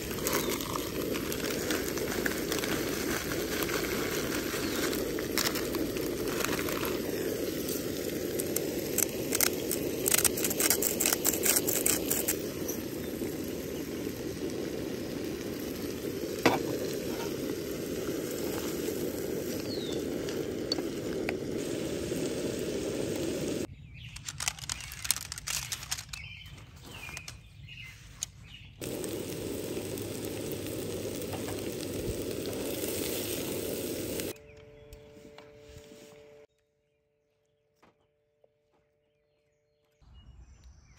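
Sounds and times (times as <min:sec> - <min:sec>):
vegetables sizzling in a frying pan: 0:00.0 - 0:23.7, 0:28.8 - 0:34.4
scattered crackles and clicks: 0:00.0 - 0:35.9.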